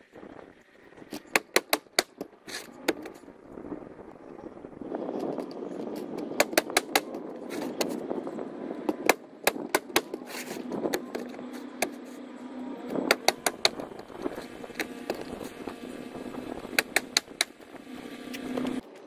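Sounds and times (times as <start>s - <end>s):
nail gun firing: 6.4s - 7.2s
shingles rustling: 9.0s - 12.2s.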